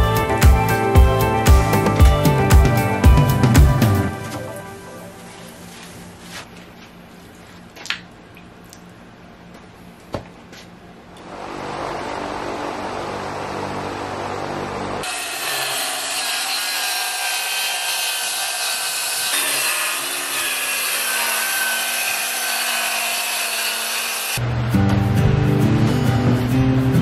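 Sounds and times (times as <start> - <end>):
circular saw cutting plywood: 11.2 - 24.4.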